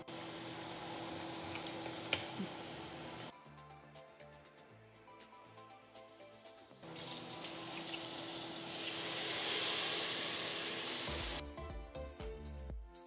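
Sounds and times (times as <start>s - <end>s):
background music: 0.0s - 13.0s
faucet water running into sink: 6.9s - 11.4s.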